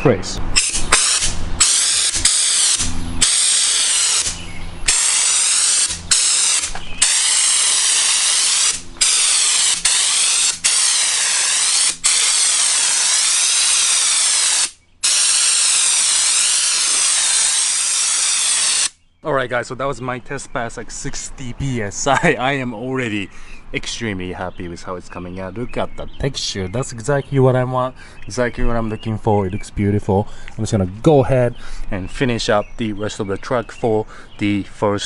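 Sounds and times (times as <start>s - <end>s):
spray gun hissing: 0.6s - 19.0s.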